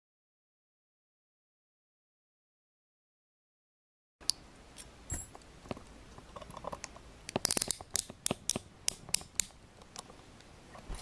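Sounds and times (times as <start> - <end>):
handcuffs ratcheting clicks: 6.5 - 9.6.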